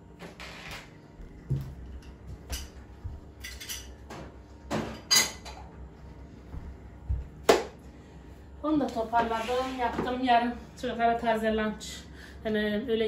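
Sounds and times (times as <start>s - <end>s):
dishes and utensils clattering: 1.9s - 2.8s, 3.4s - 5.7s.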